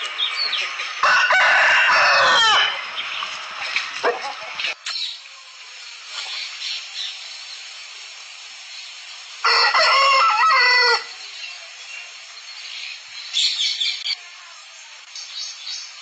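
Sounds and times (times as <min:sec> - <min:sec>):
rooster crowing: 0:01.0 - 0:02.8, 0:09.4 - 0:11.2.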